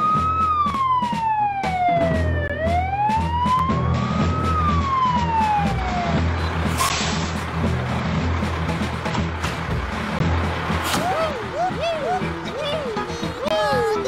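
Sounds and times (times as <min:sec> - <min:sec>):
fire engine siren wailing: 0:00.0 - 0:06.8, 0:09.9 - 0:14.0
engine running: 0:01.9 - 0:14.0.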